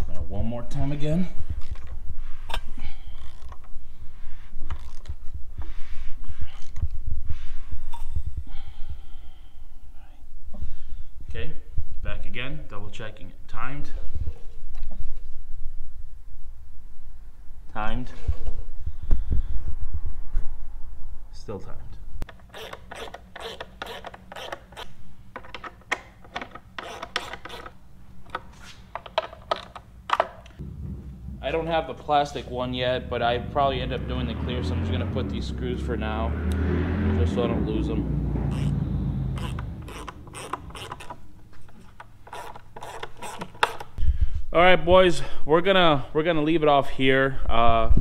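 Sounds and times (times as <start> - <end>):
wrench and engine clicks and knocks: 22.2 - 30.6, 39.4 - 44.0
low thumps: 30.6 - 35.6.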